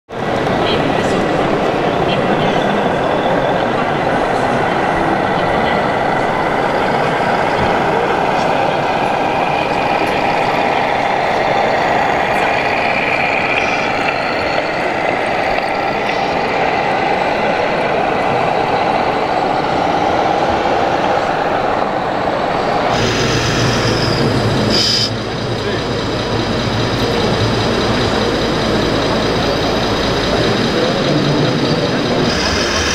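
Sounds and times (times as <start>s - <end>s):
busy exhibition hall noise: 0.1s - 32.9s
toy truck diesel engine sound: 22.6s - 32.9s.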